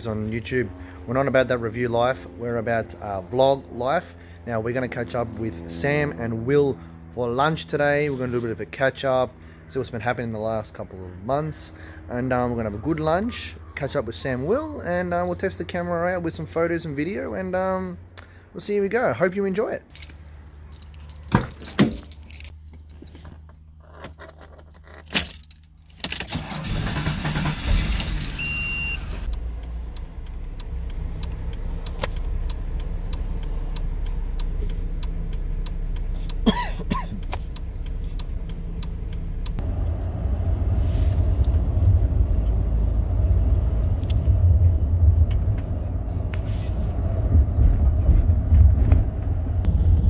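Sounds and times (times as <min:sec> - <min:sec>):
car engine rumbling: 0:19.8 - 0:50.0
car keys jangling: 0:19.9 - 0:28.6, 0:34.4 - 0:39.6
short electronic beep: 0:28.4 - 0:29.1.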